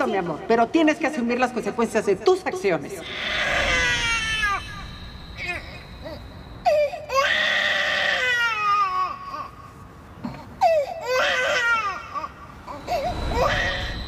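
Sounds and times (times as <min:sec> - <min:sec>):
baby crying: 0:03.0 - 0:04.8, 0:05.4 - 0:09.5.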